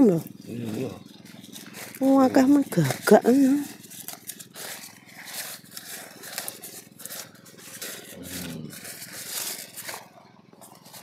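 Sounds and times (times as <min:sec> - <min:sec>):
rustling and scraping: 0:00.0 - 0:11.0
faint voice: 0:08.2 - 0:08.8.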